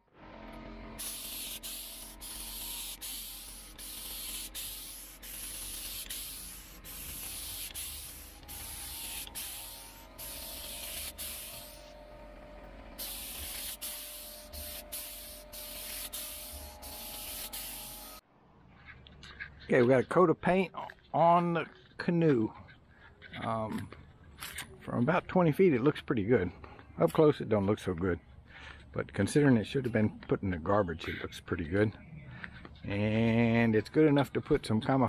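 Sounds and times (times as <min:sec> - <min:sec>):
paint spray gun hissing: 0:01.0 - 0:12.0, 0:13.0 - 0:18.2.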